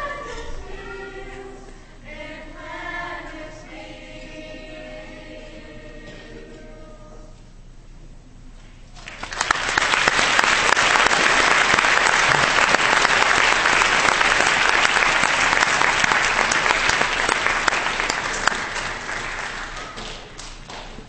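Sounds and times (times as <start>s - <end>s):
audience clapping: 9.0s - 21.0s.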